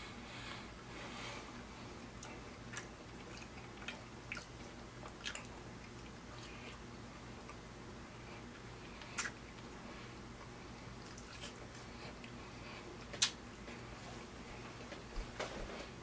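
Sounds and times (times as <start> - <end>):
faint low hum: 0.0 - 16.0
chewing with wet mouth clicks: 2.2 - 7.6, 8.9 - 9.8, 10.4 - 13.6.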